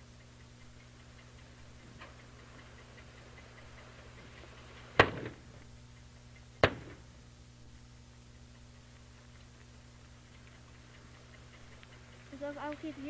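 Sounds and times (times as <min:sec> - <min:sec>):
faint rapid ticking: 0:00.0 - 0:13.0
faint steady hum: 0:00.0 - 0:13.0
explosive charges banging: 0:06.6 - 0:07.0.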